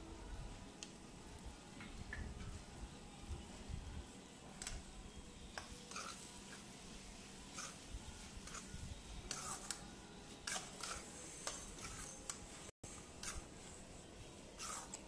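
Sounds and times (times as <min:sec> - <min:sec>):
metal spatula scraping a pan: 0:05.5 - 0:15.0.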